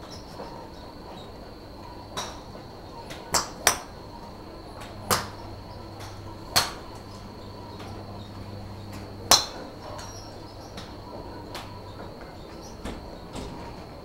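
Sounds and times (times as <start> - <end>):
golf clubs striking balls: 4.8 - 12.2.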